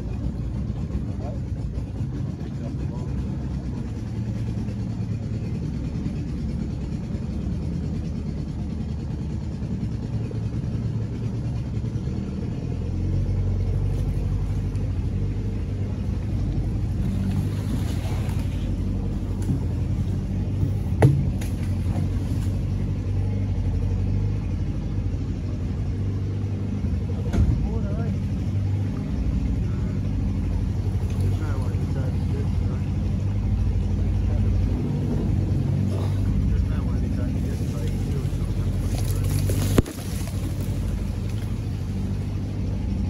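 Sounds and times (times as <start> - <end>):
outboard motor running: 0.0 - 43.0
sharp knock: 21.0 - 21.4.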